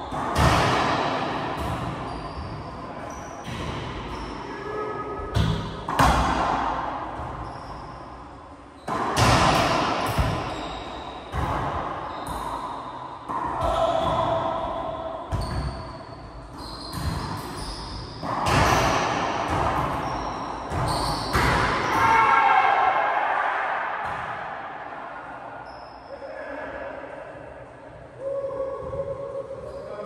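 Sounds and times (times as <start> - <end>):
racquetball hits echoing: 0.0 - 4.4, 5.2 - 8.2, 8.8 - 23.0, 23.6 - 25.0
shoe squeaks: 2.0 - 3.5, 4.1 - 4.6, 7.4 - 8.0, 10.5 - 11.2, 12.0 - 12.9, 15.3 - 18.2, 20.0 - 21.6, 25.6 - 26.3.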